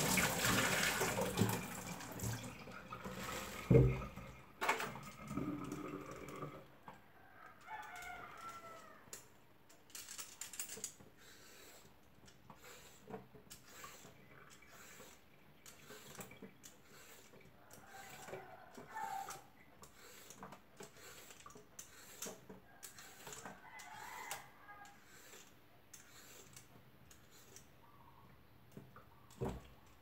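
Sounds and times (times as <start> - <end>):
rooster crowing: 7.1 - 9.1, 17.8 - 19.4, 23.0 - 25.0
radish peeling scrapes: 12.5 - 27.7.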